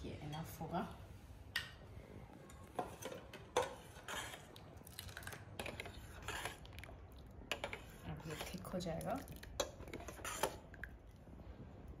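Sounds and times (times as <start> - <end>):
ladle scraping steel pot: 2.8 - 4.6, 5.2 - 6.8, 7.5 - 8.7, 9.5 - 10.7.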